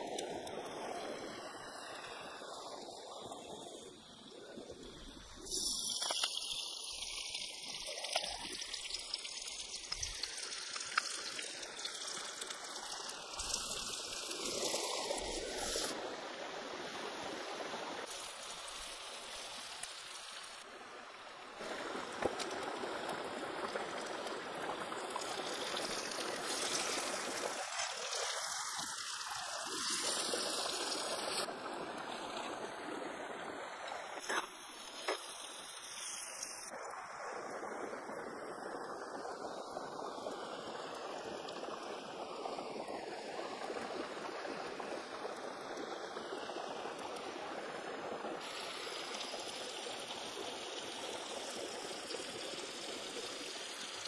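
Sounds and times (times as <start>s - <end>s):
herbs sizzling in hot oil: 4.8s - 16.0s, 21.6s - 31.5s, 34.2s - 36.8s, 48.4s - 54.0s.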